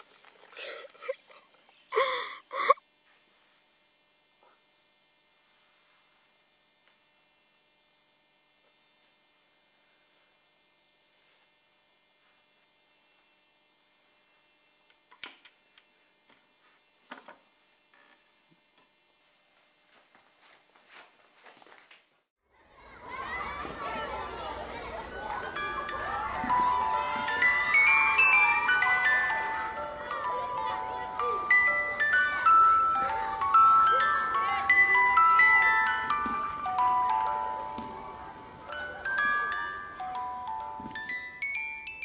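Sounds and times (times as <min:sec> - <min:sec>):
faint steady hum: 0:00.0 - 0:21.6
boy sobbing: 0:00.6 - 0:02.8.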